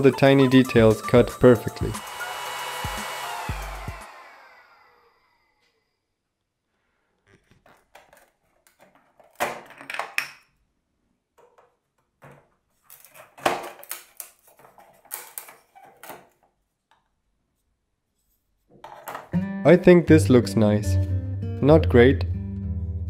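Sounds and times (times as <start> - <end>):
wooden pieces clicking and clattering: 7.6 - 10.6.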